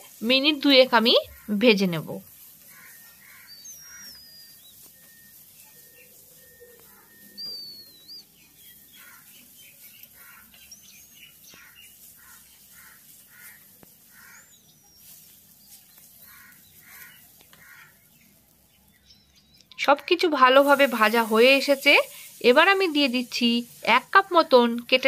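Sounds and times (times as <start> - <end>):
soft bird chirps: 0.1 - 24.1
birds whistling: 2.4 - 19.8.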